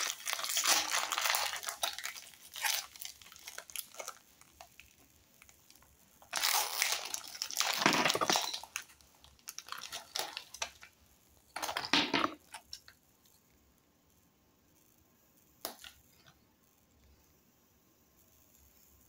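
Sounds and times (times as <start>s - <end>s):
plastic wrapper crinkling: 0.0s - 13.0s, 15.6s - 16.3s.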